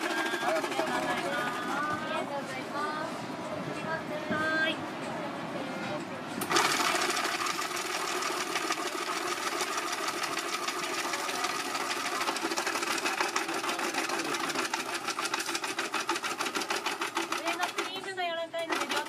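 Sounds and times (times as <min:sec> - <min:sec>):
small machine clattering: 0:00.0 - 0:01.9, 0:06.4 - 0:19.0.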